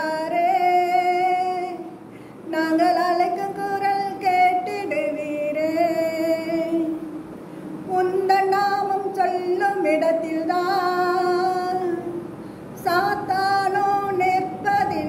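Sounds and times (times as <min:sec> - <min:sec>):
woman singing: 0:00.0 - 0:07.1, 0:07.9 - 0:12.2, 0:12.8 - 0:15.0.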